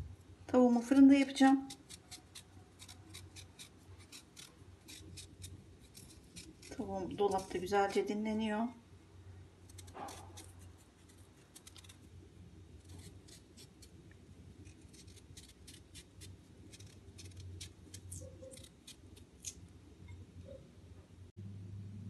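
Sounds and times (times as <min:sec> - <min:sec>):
knife scraping potato skin: 0:01.2 - 0:08.2, 0:09.6 - 0:12.1, 0:12.8 - 0:19.6.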